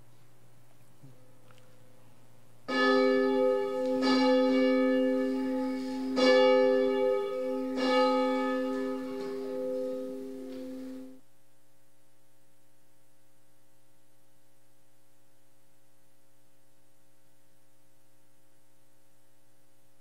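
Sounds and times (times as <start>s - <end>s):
church bell tolling: 2.7s - 11.2s.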